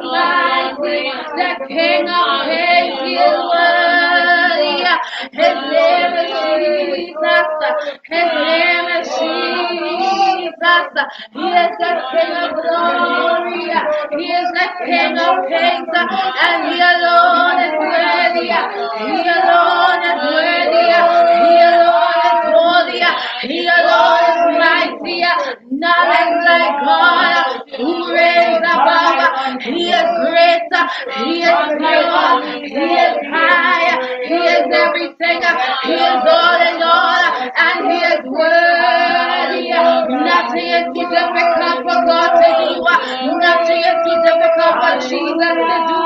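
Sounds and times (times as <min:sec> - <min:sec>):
woman singing a worship song: 0:00.0 - 0:46.0.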